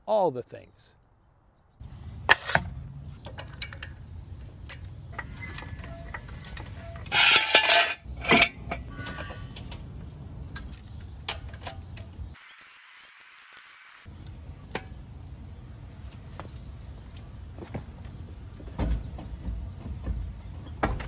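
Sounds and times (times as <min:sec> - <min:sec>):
metal clanks from jack: 0:04.6 - 0:09.8.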